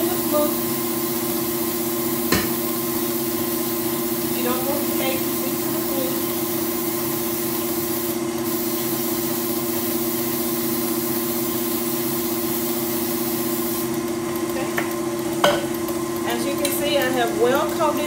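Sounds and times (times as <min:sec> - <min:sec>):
aerosol spray hissing: 0:00.0 - 0:13.9
stand mixer humming: 0:00.0 - 0:18.0.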